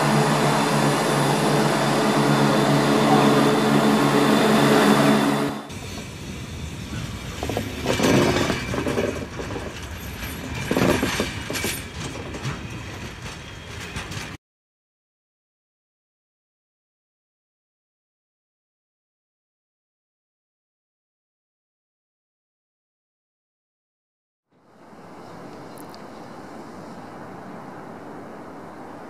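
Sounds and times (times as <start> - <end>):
diesel train engines humming: 0.0 - 14.3.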